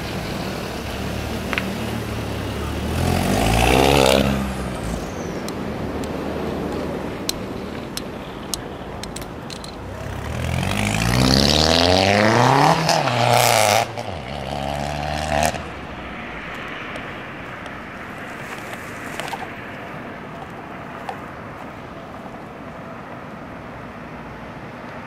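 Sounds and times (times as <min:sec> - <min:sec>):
car accelerating past: 0:00.0 - 0:07.6, 0:09.8 - 0:22.1
steady traffic hum: 0:00.0 - 0:25.0.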